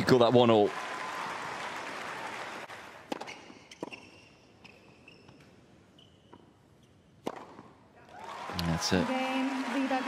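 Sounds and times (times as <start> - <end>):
racquet hitting tennis ball: 3.1 - 5.5, 7.2 - 7.8.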